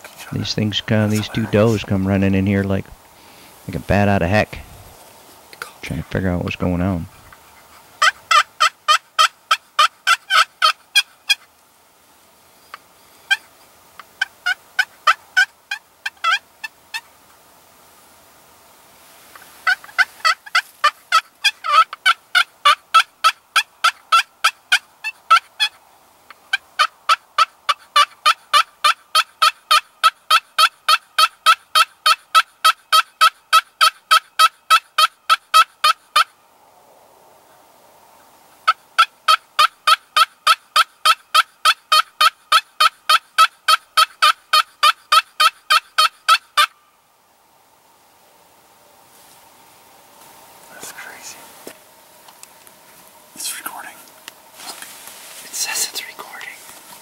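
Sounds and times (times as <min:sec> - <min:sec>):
turkey call hen yelps: 0:07.5 - 0:11.5, 0:13.3 - 0:17.1, 0:19.6 - 0:25.8, 0:26.4 - 0:36.3, 0:38.7 - 0:46.8.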